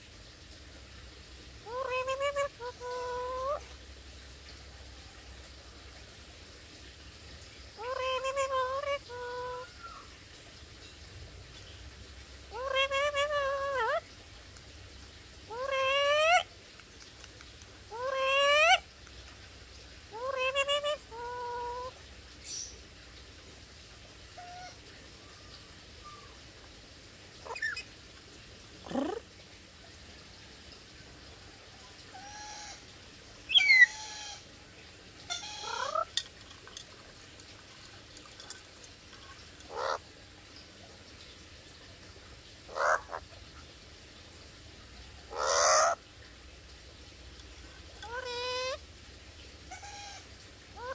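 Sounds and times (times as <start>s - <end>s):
parrot harsh squawks: 1.6s - 3.6s, 15.5s - 16.4s, 17.9s - 18.8s, 27.4s - 27.8s, 28.8s - 29.2s, 33.5s - 34.4s, 35.3s - 36.2s, 39.7s - 40.0s, 42.7s - 43.2s, 45.3s - 46.0s, 48.0s - 48.8s, 49.7s - 50.9s.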